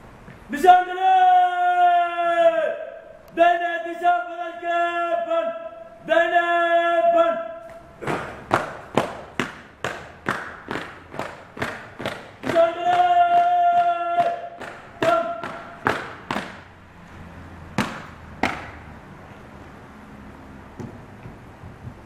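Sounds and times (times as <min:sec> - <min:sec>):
long held call: 0:00.5 - 0:11.0, 0:11.7 - 0:16.8.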